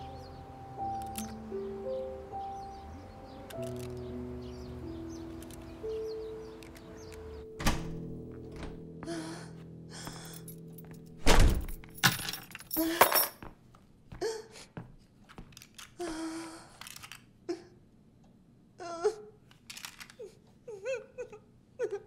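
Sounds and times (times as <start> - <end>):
door thudding shut: 7.6 - 8.8, 11.2 - 11.8
woman sobbing: 9.0 - 10.4, 12.8 - 13.3, 14.2 - 14.8, 16.0 - 16.8, 18.8 - 19.4, 20.2 - 22.0
keys and handbag rattling: 10.3 - 13.4.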